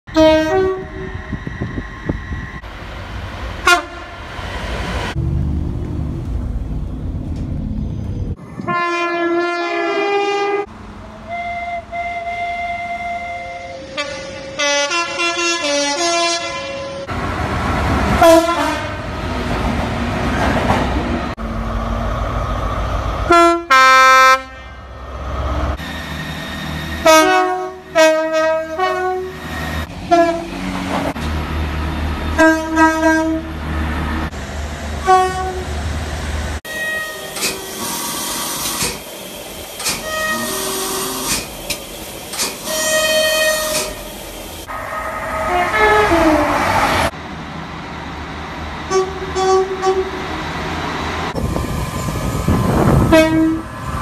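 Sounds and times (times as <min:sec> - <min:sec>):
train horn two-note blasts: 0:00.1 - 0:01.1, 0:03.6 - 0:04.0, 0:08.6 - 0:10.7, 0:11.3 - 0:17.1, 0:18.2 - 0:19.0, 0:23.3 - 0:25.0, 0:27.0 - 0:29.4, 0:30.1 - 0:30.5, 0:32.4 - 0:33.5, 0:35.0 - 0:35.7, 0:42.7 - 0:43.9, 0:44.7 - 0:46.6, 0:48.9 - 0:50.2, 0:53.0 - 0:53.7
trains rumbling through station: 0:00.1 - 0:54.0.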